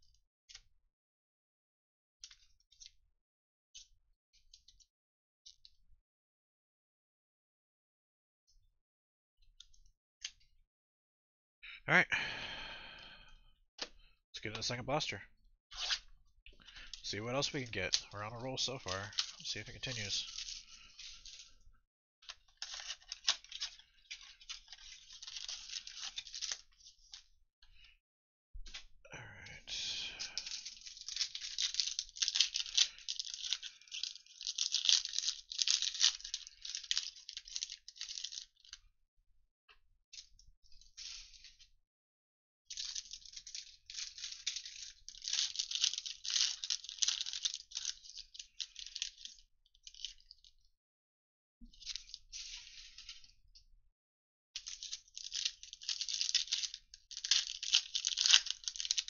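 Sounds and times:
foil wrapper crinkling: 16.6 - 21.6, 22.3 - 27.2, 30.1 - 38.8, 42.7 - 50.5, 51.8 - 53.3, 54.6 - 59.0.

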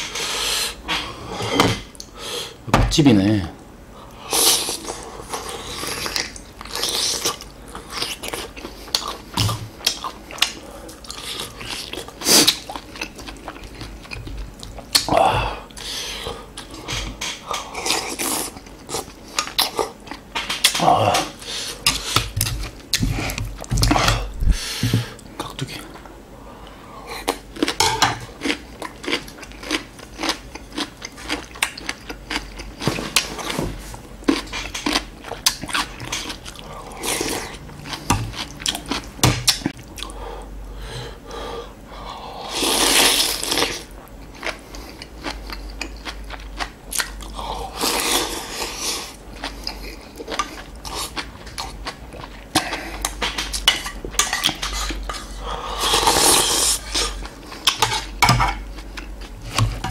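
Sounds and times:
chewing: 4.6 - 15.1, 27.2 - 33.6, 34.2 - 40.1, 43.2 - 53.6.

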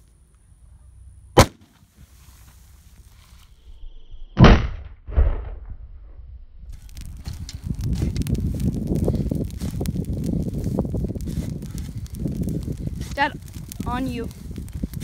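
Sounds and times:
sharp crack: 1.4 - 1.9, 4.4 - 5.8, 6.7 - 15.0
explosion boom: 4.4 - 9.4.

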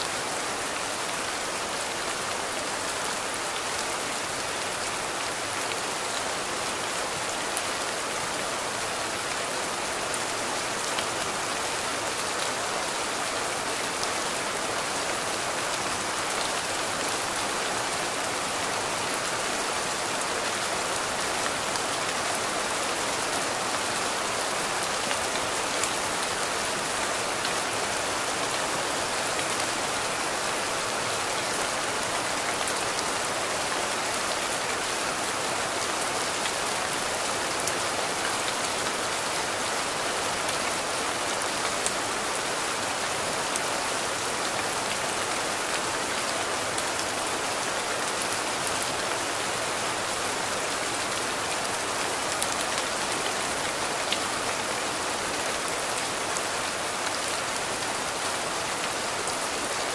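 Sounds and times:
steady rain hiss: 0.0 - 59.9.

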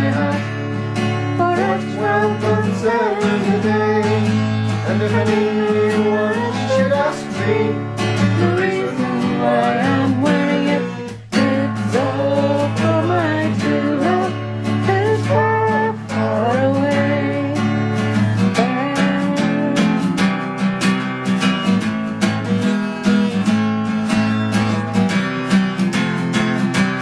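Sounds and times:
person singing: 0.0 - 0.5, 1.4 - 17.8, 18.4 - 20.5
acoustic guitar strumming: 0.0 - 27.0.

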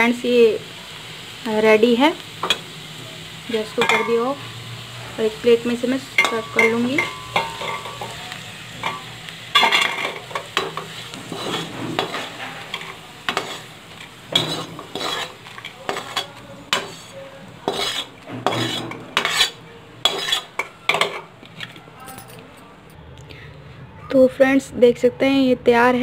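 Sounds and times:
light sizzle of hot oil: 0.0 - 21.8
metal spatula scraping a pan: 3.5 - 21.7.

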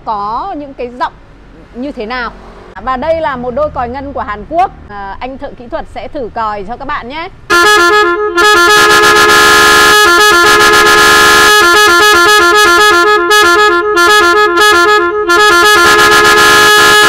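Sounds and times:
loud electric car horns: 7.5 - 17.0.

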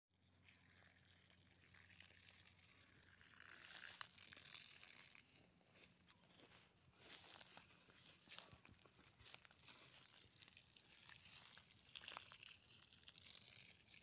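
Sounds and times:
water splashing onto soil: 0.4 - 5.4, 9.6 - 14.0.

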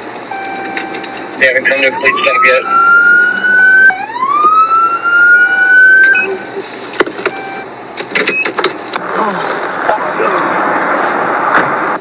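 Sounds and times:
police siren wailing: 0.7 - 6.6.

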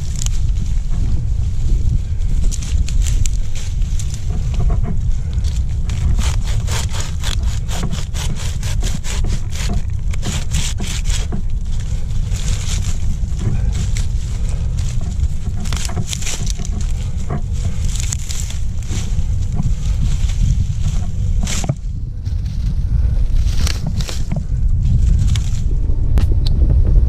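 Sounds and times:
ivy rustling and snapping: 0.0 - 1.1, 2.4 - 21.8.

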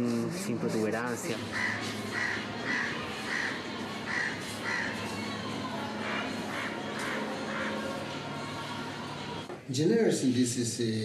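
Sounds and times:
crow cawing: 1.4 - 5.0, 6.0 - 8.1.

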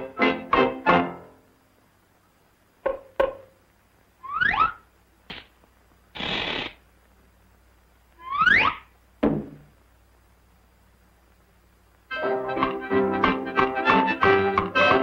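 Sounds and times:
short hiss: 5.3 - 6.9
cartoon knocks: 9.2 - 9.7.

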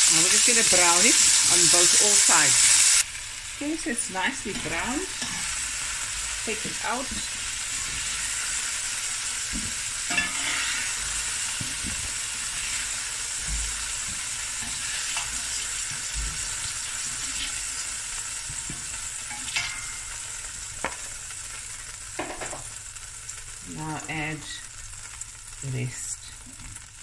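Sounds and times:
meat sizzling in hot oil: 0.0 - 27.0
metal utensils scraping pot: 10.1 - 17.8.

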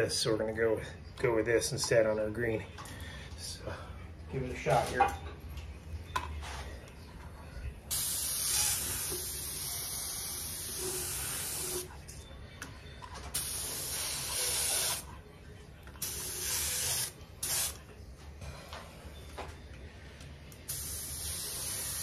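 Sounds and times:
paint spray gun hissing: 7.9 - 11.8, 13.4 - 15.0, 16.0 - 17.8, 20.7 - 22.0.

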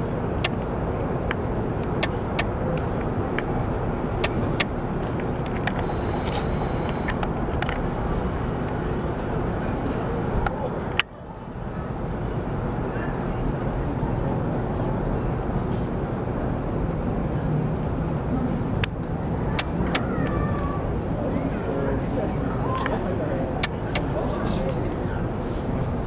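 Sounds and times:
outdoor rumble: 4.2 - 10.5
camera handling clicks: 5.5 - 10.5.

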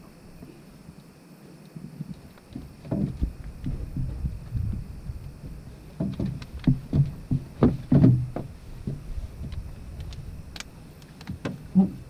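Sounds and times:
knocks and bumps on boat deck: 2.5 - 9.8, 11.3 - 12.0
sharp clicks: 9.5 - 11.5.

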